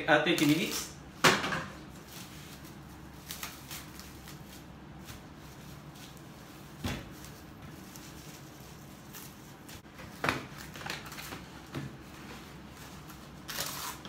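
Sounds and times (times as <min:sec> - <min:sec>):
plastic bag rustling: 0:01.9 - 0:11.6.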